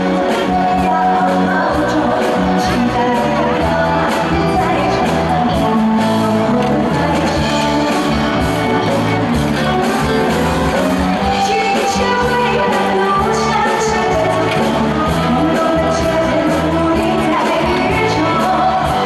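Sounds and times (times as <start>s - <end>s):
woman singing into microphone: 0.0s - 8.9s, 11.2s - 19.0s
drums steady beat: 0.0s - 19.0s
live band playing pop song: 0.0s - 19.0s.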